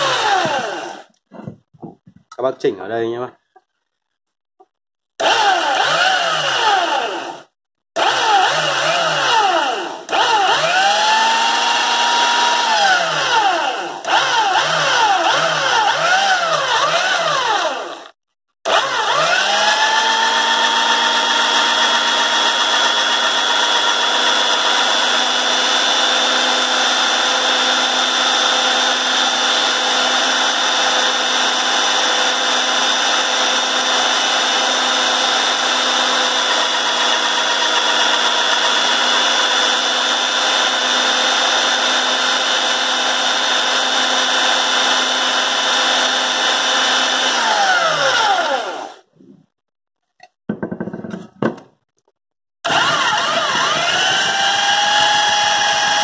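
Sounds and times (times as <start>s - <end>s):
belt sander motor whine: 0.0s - 1.1s, 52.7s - 56.0s.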